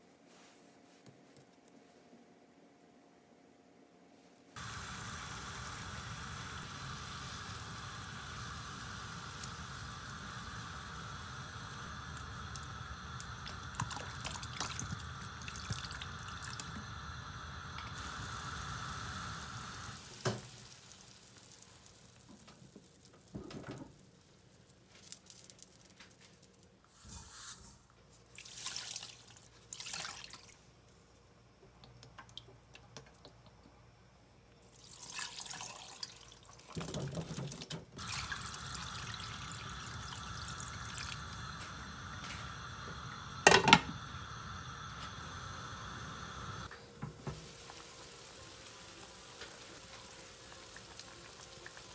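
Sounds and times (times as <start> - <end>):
water boiling in pan: 4.6 - 25.8, 28.2 - 30.7, 34.6 - 51.9
tap running in spurts: 12.1 - 16.9.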